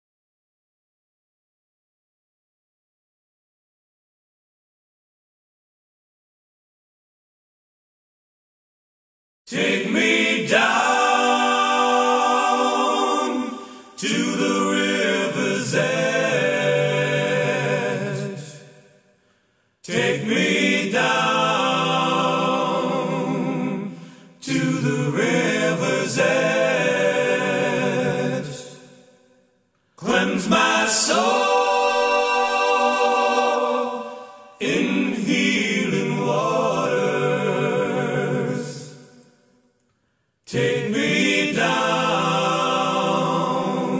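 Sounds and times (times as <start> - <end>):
voices singing a cappella: 9.5 - 19.2, 19.8 - 39.6, 40.5 - 43.9.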